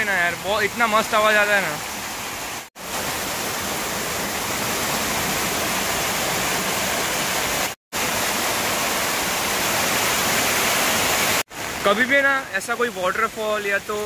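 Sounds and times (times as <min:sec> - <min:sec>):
water rushing down steps: 0:00.1 - 0:14.0.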